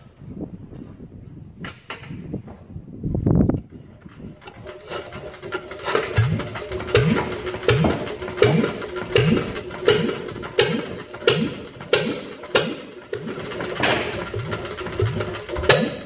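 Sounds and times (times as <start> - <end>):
diesel engine knocking slowly: 3.7 - 16.0.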